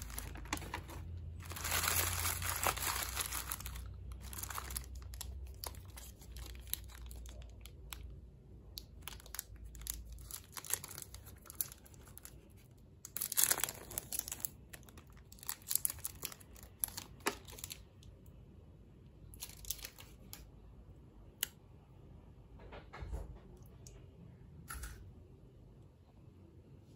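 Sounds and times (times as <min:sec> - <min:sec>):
wrapper ripping: 0:00.0 - 0:08.0, 0:08.8 - 0:12.4, 0:13.0 - 0:17.8
wrapper crinkling: 0:00.0 - 0:08.1, 0:08.8 - 0:17.9, 0:19.4 - 0:20.3.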